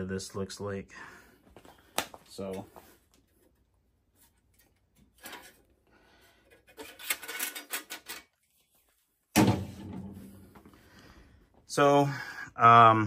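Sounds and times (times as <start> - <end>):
metal parts clinking and rattling: 6.8 - 8.3.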